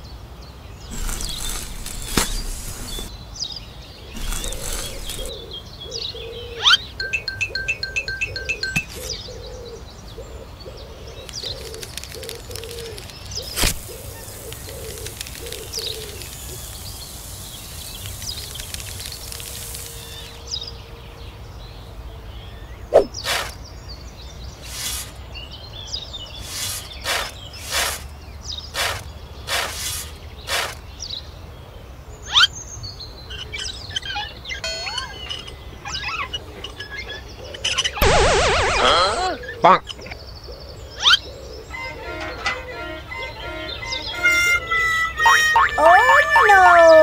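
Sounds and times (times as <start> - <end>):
faint birdsong: 0.0 - 47.0
paper packet tearing: 0.9 - 3.1, 4.2 - 5.3, 11.6 - 20.4, 24.6 - 25.2, 26.4 - 28.1, 28.8 - 30.8
powder pouring onto sand: 0.9 - 3.1, 4.2 - 5.3, 13.4 - 20.4, 24.6 - 25.2, 26.4 - 28.1, 28.8 - 30.8
trowel scraping sand: 0.9 - 3.1, 4.2 - 5.3, 13.4 - 20.5, 23.0 - 23.6, 24.6 - 25.2, 26.4 - 28.1, 28.7 - 30.9.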